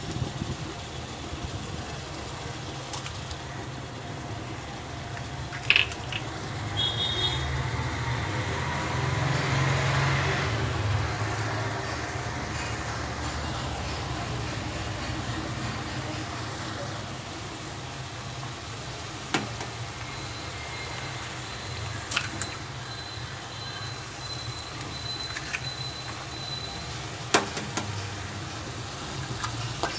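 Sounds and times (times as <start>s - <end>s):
eggshell cracking: 5.1s - 6.4s.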